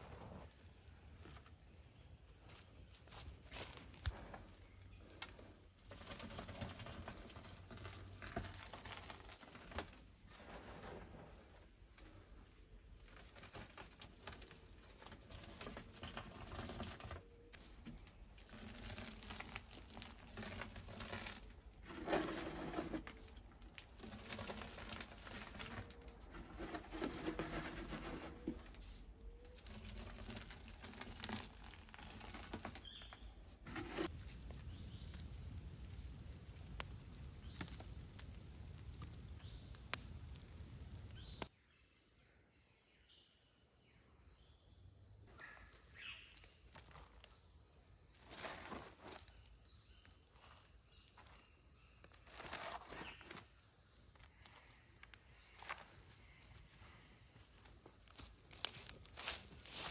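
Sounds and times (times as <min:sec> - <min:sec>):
insects trilling: 0:00.0 - 0:10.1, 0:11.6 - 0:59.9
ash scraping and rustling: 0:18.4 - 0:28.8, 0:29.6 - 0:41.5
ash crunching and rustling by hand: 0:29.6 - 0:33.0.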